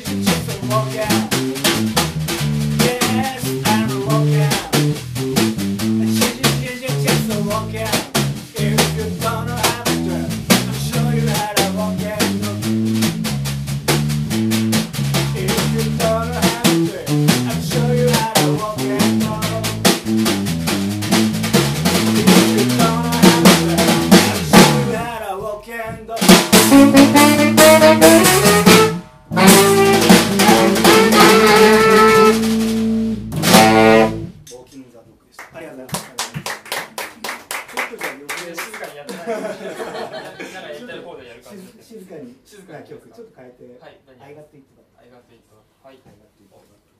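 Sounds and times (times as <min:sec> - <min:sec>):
rock band playing: 0:00.0 - 0:25.0, 0:26.3 - 0:34.4.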